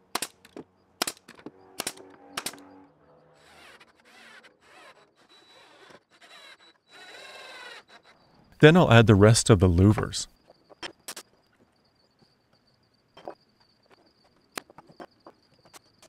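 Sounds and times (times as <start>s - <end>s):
nail gun shots: 0.1s - 2.6s.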